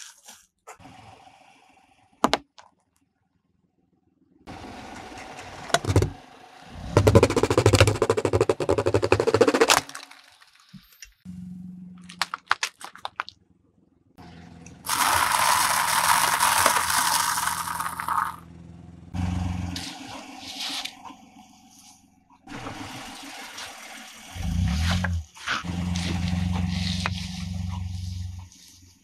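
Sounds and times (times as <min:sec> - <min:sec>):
plastic container crunching: 0:07.0 - 0:10.6, 0:12.0 - 0:13.4, 0:14.9 - 0:18.4
tyre crunching dry noodles: 0:12.0 - 0:13.3, 0:14.9 - 0:18.4.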